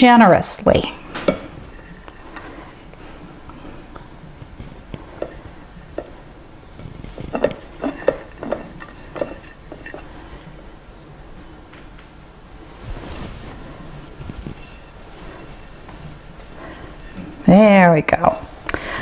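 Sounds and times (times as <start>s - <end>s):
fingers tapping a plate: 4.6s - 6.2s, 6.8s - 10.1s
cheese rustling: 12.6s - 17.5s.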